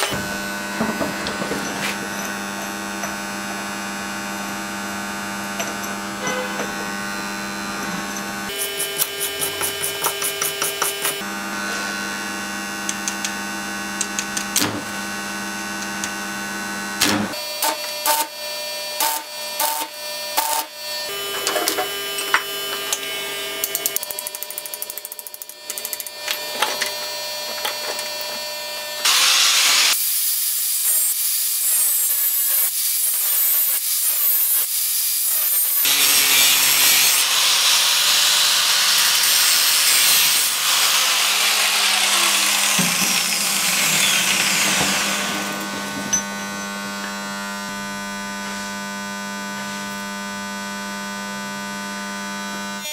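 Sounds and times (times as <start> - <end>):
angle grinder grinding metal: 0.0 - 14.6, 17.2 - 48.6
welding machine hum: 0.0 - 50.3
sizzling welding arc: 8.4 - 11.2, 17.3 - 47.6.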